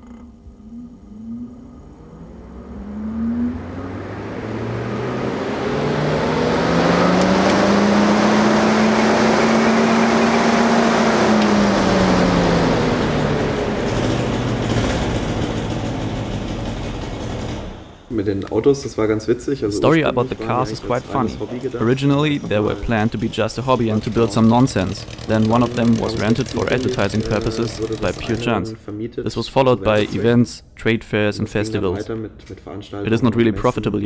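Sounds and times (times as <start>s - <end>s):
electric motor winding up: 0.0s - 17.8s, 20.0s - 28.7s.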